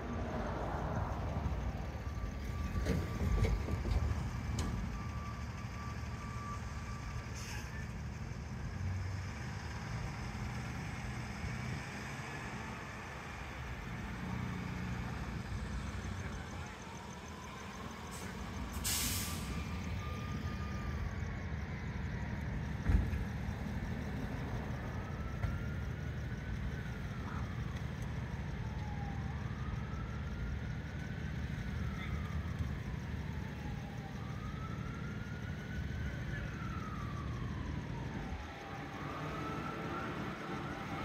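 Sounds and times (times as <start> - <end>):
siren wailing: 0.0 - 8.6, 10.1 - 41.0
idling engines rumble: 0.0 - 41.0
short hiss: 18.8 - 19.6
thump: 22.8 - 23.2.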